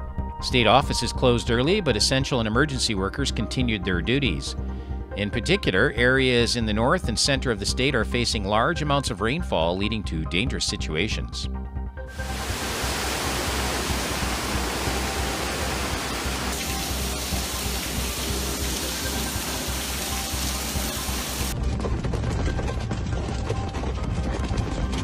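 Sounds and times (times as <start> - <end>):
background music: 0.0 - 25.0
water cascading down stairs: 12.1 - 21.6.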